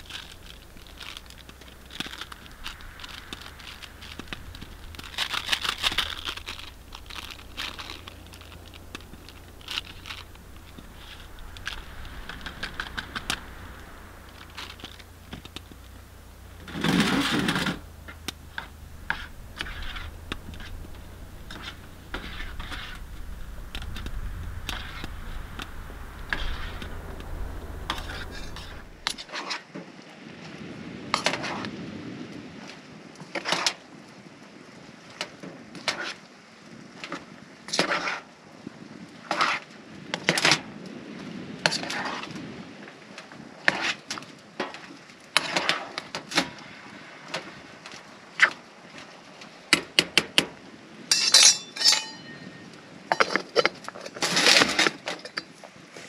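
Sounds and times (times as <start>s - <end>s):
steady low rumble: 0.0s - 29.3s.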